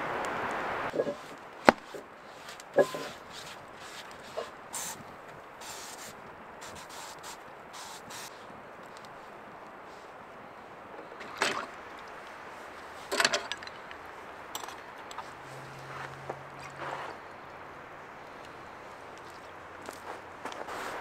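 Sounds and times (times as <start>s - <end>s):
metal utensils scraping a frying pan: 2.8s - 3.3s.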